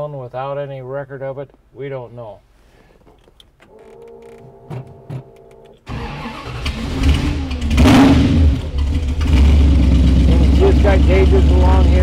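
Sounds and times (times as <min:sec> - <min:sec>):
engine starting and running: 0:05.8 - 0:12.0
starter motor whine: 0:05.9 - 0:10.3.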